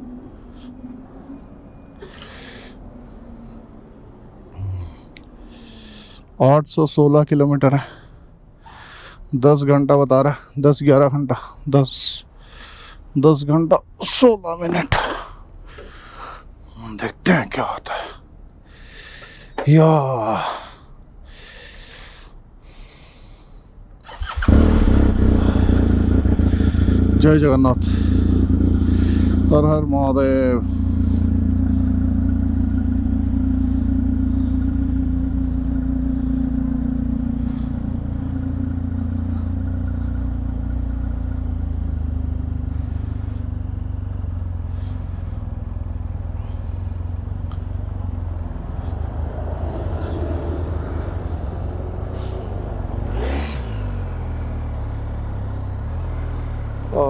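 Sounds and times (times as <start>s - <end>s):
motorcycle engine riding: 24.0s - 57.0s.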